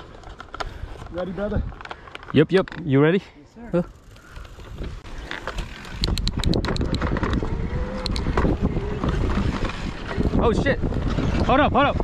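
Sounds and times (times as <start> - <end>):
bike rumble and rattle: 0.0 - 12.0
wind buffeting microphone: 4.5 - 12.0
sharp clicks: 5.9 - 7.4.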